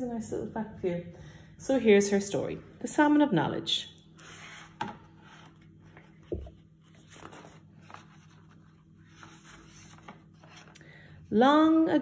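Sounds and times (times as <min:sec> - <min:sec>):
book pages turning: 0:04.1 - 0:10.8.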